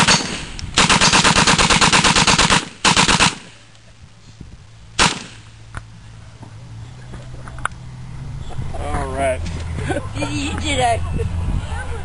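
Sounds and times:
machine gun firing: 0.0s - 3.6s, 5.0s - 5.5s.

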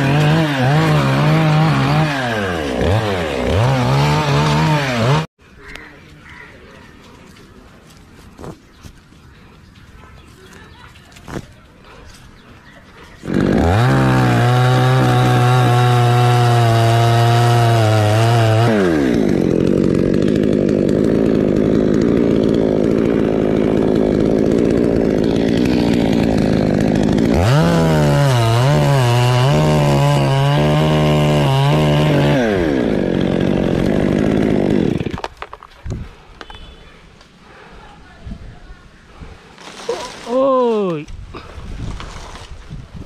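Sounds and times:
chainsaw cutting wood: 0.0s - 5.3s, 13.2s - 36.6s.

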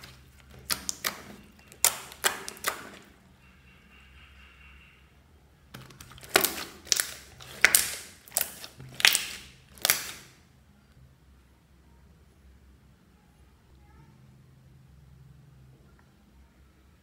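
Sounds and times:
slime squelching pops: 0.0s - 3.1s, 5.8s - 10.4s.

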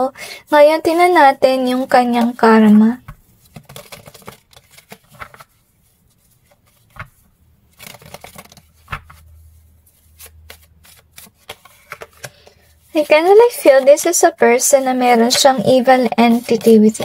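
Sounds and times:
cards being shuffled: 1.8s - 14.1s, 14.9s - 17.0s.

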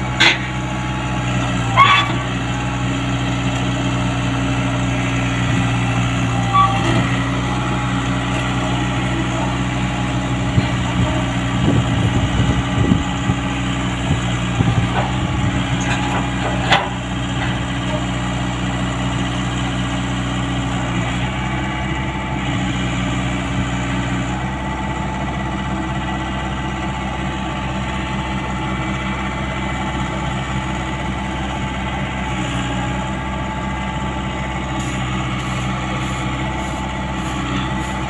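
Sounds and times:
tracks clanking on steel ramps: 0.0s - 0.7s, 1.6s - 2.5s, 14.6s - 18.2s
diesel engine running: 0.0s - 38.0s.

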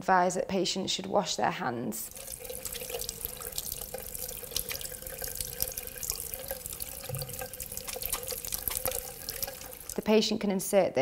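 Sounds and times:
tap water running into basin: 2.0s - 10.1s
hands washing with splashes: 2.1s - 10.0s.

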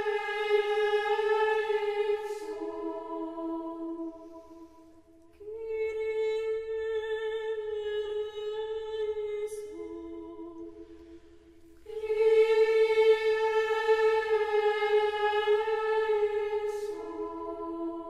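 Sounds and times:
voices singing a chant: 0.0s - 7.8s, 11.8s - 18.0s.

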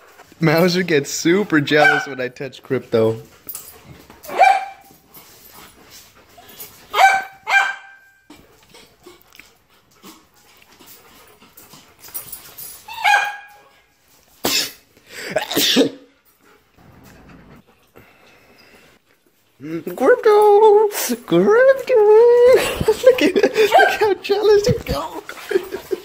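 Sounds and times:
dog barking: 1.8s - 2.2s, 4.3s - 4.9s, 6.9s - 8.1s, 13.0s - 13.6s, 23.6s - 24.1s.

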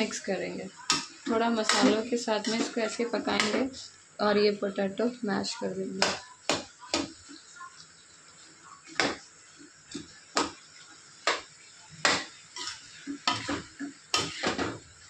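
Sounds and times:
faint sizzle: 0.0s - 15.0s
spoon scraping steel pan: 0.9s - 3.6s, 12.6s - 14.6s.

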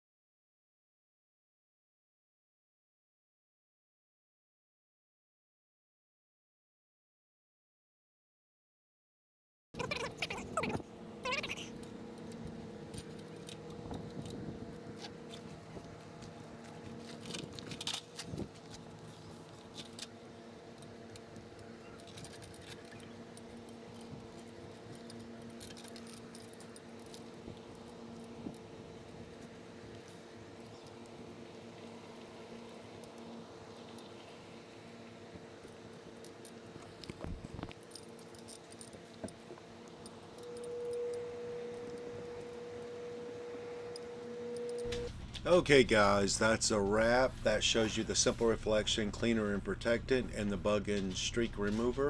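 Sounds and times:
faint steady hum: 9.8s - 52.0s.

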